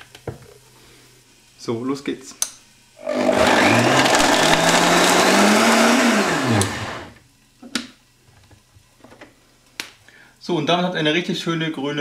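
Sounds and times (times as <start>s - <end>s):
blender running and winding down: 3.0s - 7.2s.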